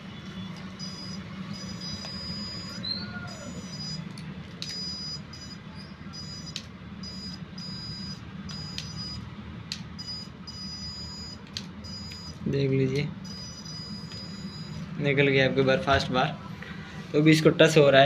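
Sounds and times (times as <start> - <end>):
low steady hum: 0.0 - 18.0
high-pitched electronic beeping: 0.4 - 4.1, 4.7 - 9.3, 10.0 - 12.5, 13.2 - 14.9
sharp clicks: 11.4 - 14.9.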